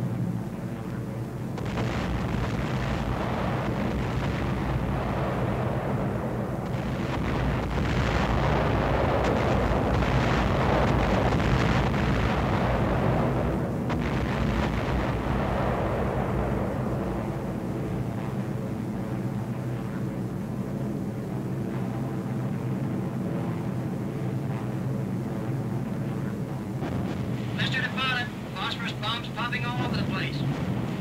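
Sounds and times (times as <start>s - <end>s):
bomber engines droning: 0.0s - 31.0s
rumble of bomb explosions: 0.7s - 31.0s.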